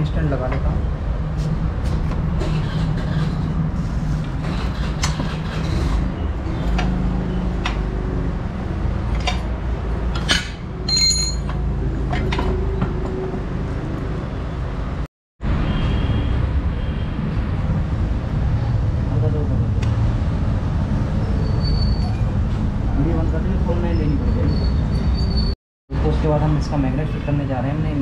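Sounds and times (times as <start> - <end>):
metal parts and tools clinking: 10.2 - 12.6.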